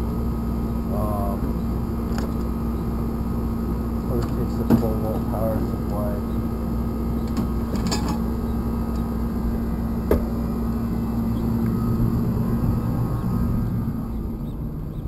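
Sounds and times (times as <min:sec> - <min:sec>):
faint hum: 0:00.0 - 0:15.0.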